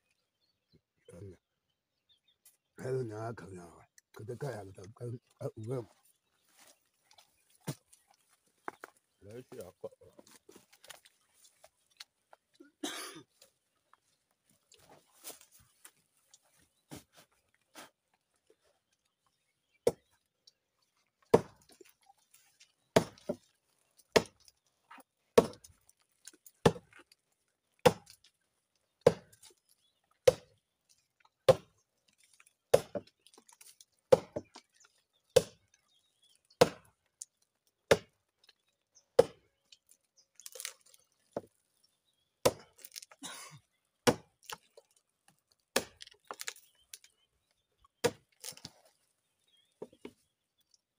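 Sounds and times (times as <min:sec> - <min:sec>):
axe chopping tree trunk: 0:19.8 - 0:20.1, 0:21.3 - 0:21.8, 0:22.9 - 0:23.4, 0:24.1 - 0:24.4, 0:25.4 - 0:25.8, 0:26.6 - 0:27.0, 0:27.8 - 0:28.2, 0:29.0 - 0:29.5, 0:30.2 - 0:30.5, 0:31.4 - 0:31.7, 0:32.7 - 0:33.1, 0:34.1 - 0:34.6, 0:35.3 - 0:35.6, 0:36.5 - 0:36.9, 0:37.9 - 0:38.2, 0:39.2 - 0:39.4, 0:42.4 - 0:43.1, 0:44.0 - 0:44.7, 0:45.7 - 0:46.6, 0:48.0 - 0:48.7.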